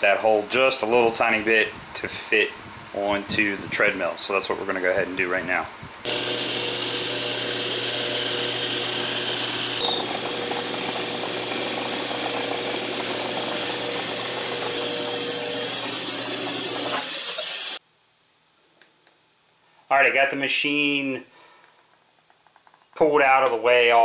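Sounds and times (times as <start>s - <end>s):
lathe motor hum: 6.0s - 17.8s
metal cutting noise: 6.0s - 17.8s
steady high tone: 9.8s - 10.1s.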